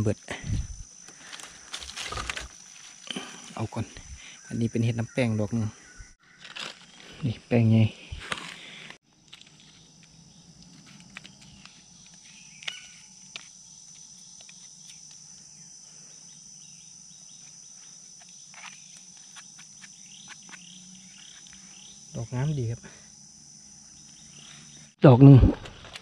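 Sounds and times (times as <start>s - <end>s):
insects chirring: 0.0s - 26.0s.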